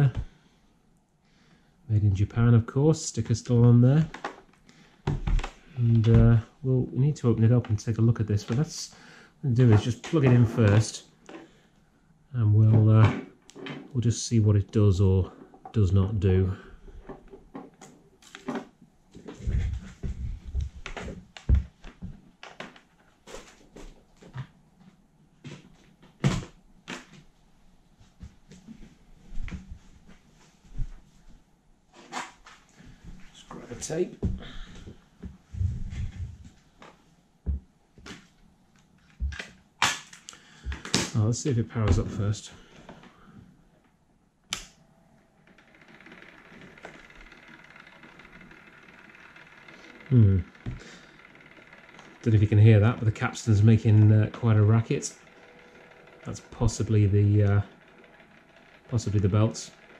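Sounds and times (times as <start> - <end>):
cassette deck mechanism running: 44.4 - 59.9.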